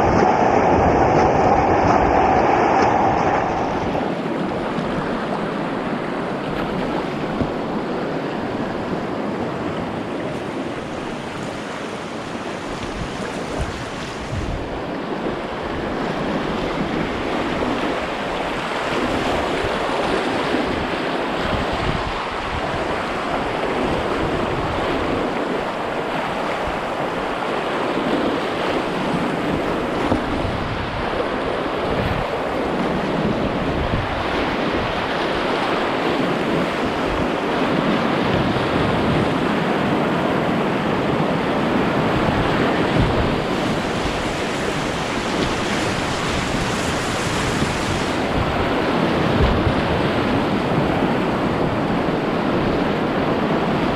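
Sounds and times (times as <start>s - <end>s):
river rapids rushing: 0.0s - 5.8s.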